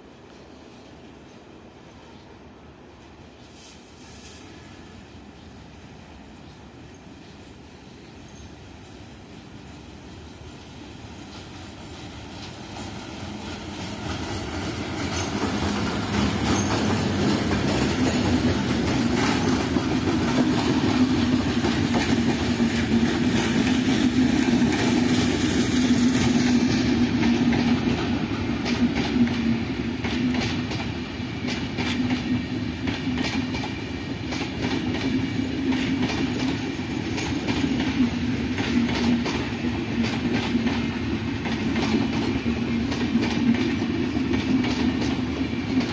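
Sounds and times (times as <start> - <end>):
train rumbling past: 0.0 - 45.9
wheels clacking over rail joints: 11.3 - 45.9.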